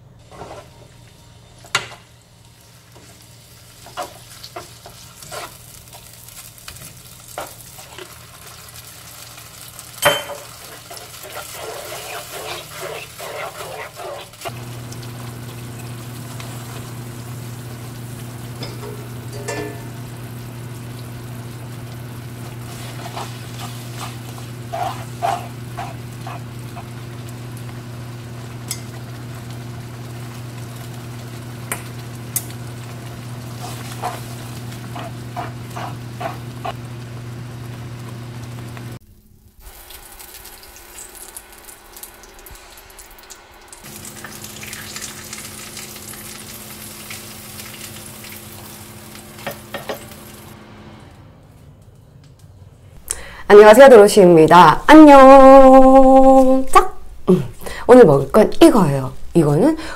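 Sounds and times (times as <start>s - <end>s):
quiet kitchen sounds: 0.0s - 59.9s
sauce simmering in a frying pan: 0.9s - 50.6s
utensil scraping a pan: 3.9s - 6.0s, 10.3s - 14.6s, 22.4s - 26.9s, 33.4s - 36.8s.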